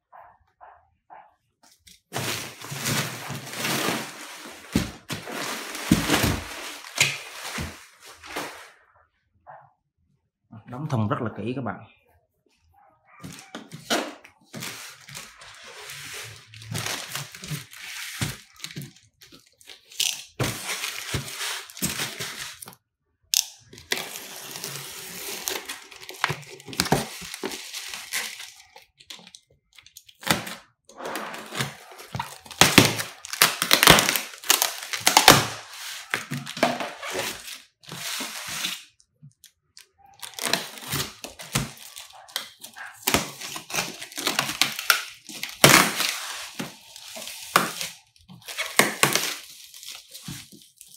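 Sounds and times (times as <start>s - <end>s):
plastic wrap crinkling and tearing: 1.8s - 8.8s, 13.2s - 22.8s, 23.4s - 50.9s
polystyrene foam creaking and scraping: 1.8s - 8.9s, 13.2s - 22.7s, 23.6s - 50.9s
packing tape being torn: 13.7s - 22.7s, 23.4s - 30.6s, 31.3s - 38.9s, 40.2s - 50.9s.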